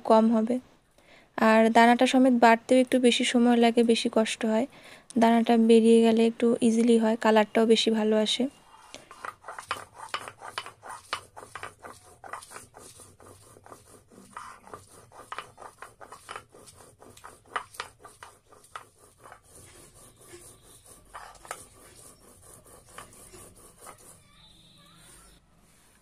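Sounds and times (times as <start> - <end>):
stone roller grinding chillies: 8.9 - 25.4.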